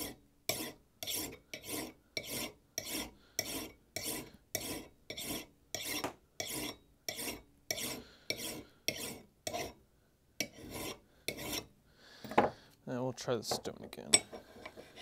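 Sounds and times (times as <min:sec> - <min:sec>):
file rasping on steel: 0:00.0 - 0:09.8, 0:10.4 - 0:11.7.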